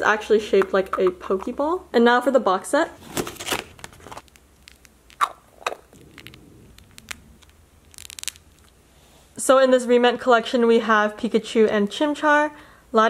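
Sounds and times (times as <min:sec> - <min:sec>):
plastic pieces clicking and scraping: 0:03.2 - 0:05.3, 0:05.9 - 0:08.8.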